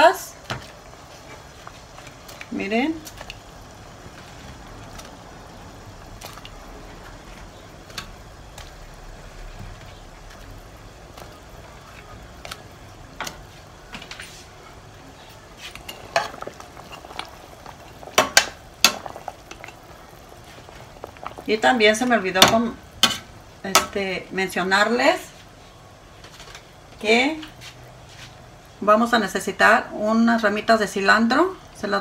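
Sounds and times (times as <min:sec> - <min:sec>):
sauce bubbling in a pot: 0:00.0 - 0:27.0
spoon stirring and scraping a pot: 0:11.1 - 0:21.5.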